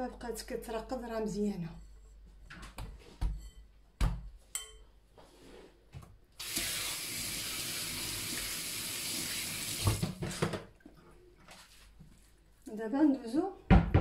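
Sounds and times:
tap running into sink: 9.6s - 10.6s.

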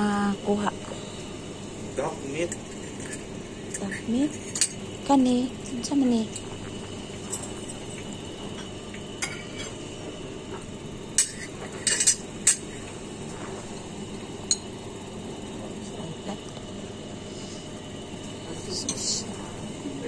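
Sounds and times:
steady background hum: 0.0s - 20.0s
metal tongs and dishes clinking: 11.2s - 12.6s.

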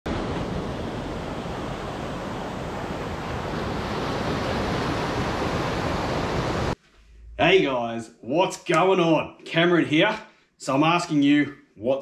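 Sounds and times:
small waves washing onto sand: 0.1s - 6.8s
wind rumbling on microphone: 0.1s - 7.4s.

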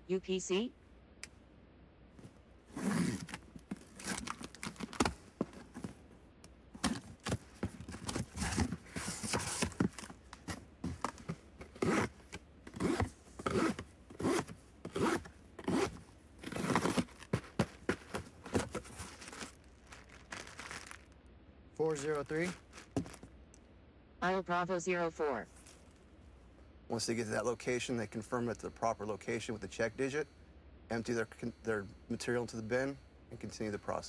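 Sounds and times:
cardboard flaps tearing: 2.8s - 5.2s, 16.5s - 21.0s
box cutter slitting cardboard: 6.8s - 19.5s.

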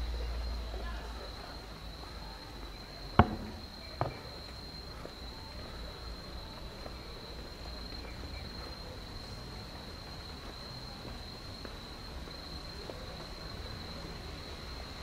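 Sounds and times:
sharp knocks: 3.2s - 4.2s.

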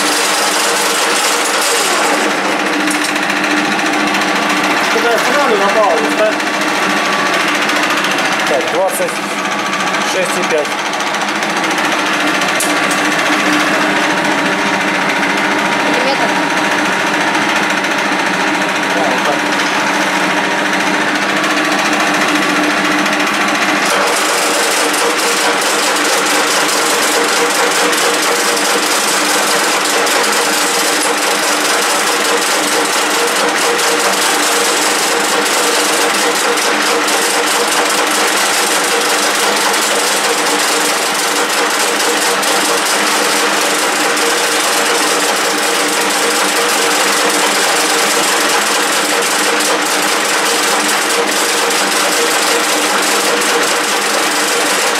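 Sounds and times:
rapid fine rattle: 0.0s - 8.8s, 23.1s - 54.9s
lathe gearbox whine: 0.0s - 54.9s.

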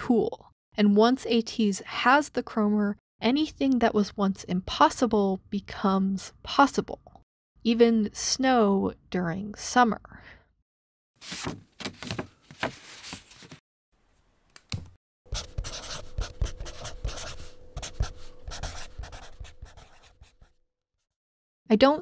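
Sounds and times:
pen scratching on paper: 15.3s - 20.6s.

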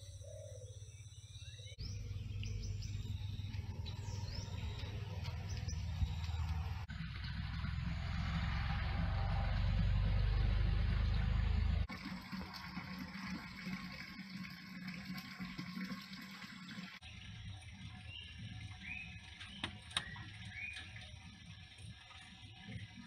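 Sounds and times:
low hum: 1.7s - 15.5s.

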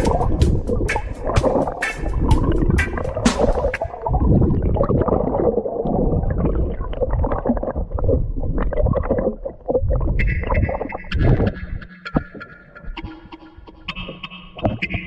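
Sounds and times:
underwater gurgling and sloshing: 0.0s - 12.3s.

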